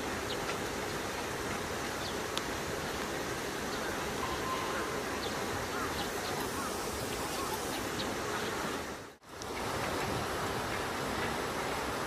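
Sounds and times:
outdoor background noise: 0:00.0 - 0:12.0
faint high chirps: 0:03.8 - 0:08.6.

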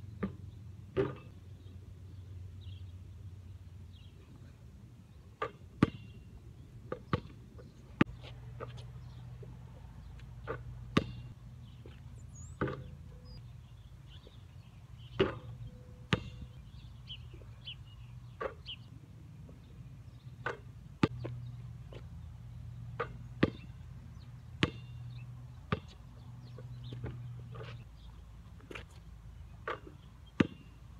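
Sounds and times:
basketball bouncing on pavement: 0:00.1 - 0:01.3, 0:05.4 - 0:06.2, 0:06.9 - 0:13.4, 0:15.1 - 0:17.6, 0:18.2 - 0:18.7, 0:20.3 - 0:27.8, 0:29.6 - 0:30.8
basketball hitting rim and backboard: 0:00.2 - 0:01.3, 0:05.4 - 0:06.2, 0:10.4 - 0:11.3, 0:12.6 - 0:13.0, 0:15.2 - 0:16.6, 0:22.9 - 0:23.8, 0:24.6 - 0:25.0, 0:25.7 - 0:26.0, 0:29.6 - 0:30.7.

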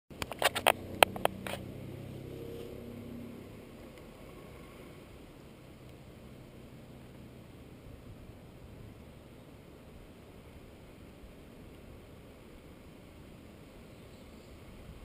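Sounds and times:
sharp clicks and knocks: 0:00.1 - 0:01.6
vehicle engines idling: 0:00.1 - 0:10.5.

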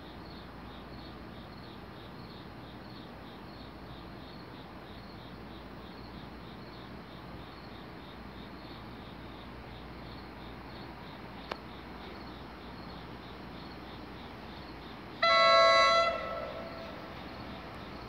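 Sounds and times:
crickets chirping: 0:00.0 - 0:18.0
train air horn blast: 0:15.2 - 0:17.2.

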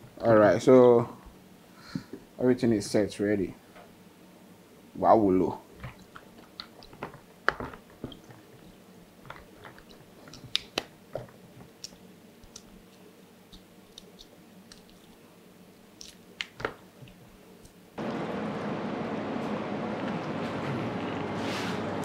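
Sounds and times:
eggshell cracking: 0:09.2 - 0:15.2, 0:15.9 - 0:17.8.

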